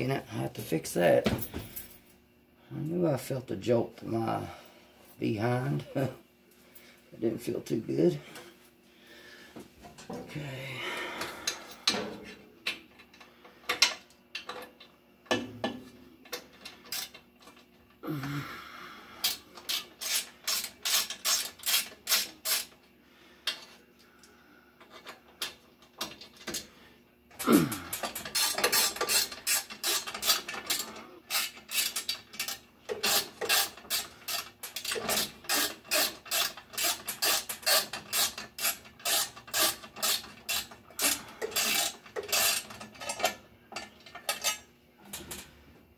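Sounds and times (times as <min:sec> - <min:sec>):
wrench ratcheting clicks: 0:27.9 - 0:43.3.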